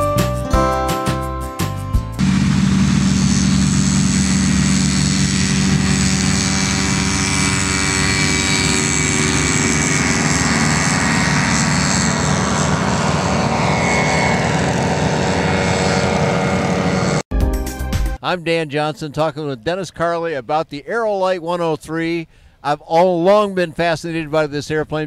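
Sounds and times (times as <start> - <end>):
ultralight engine and propeller: 2.2 - 17.3.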